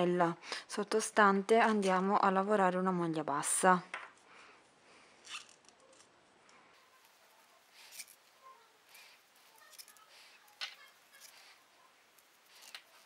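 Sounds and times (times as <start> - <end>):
crochet hook scratching yarn: 7.0 - 13.0.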